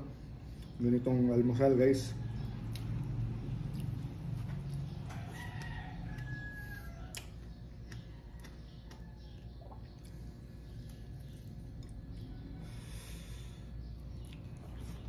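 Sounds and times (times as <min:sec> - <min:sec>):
steady low hum: 0:00.0 - 0:15.0
rooster crowing: 0:04.9 - 0:07.2.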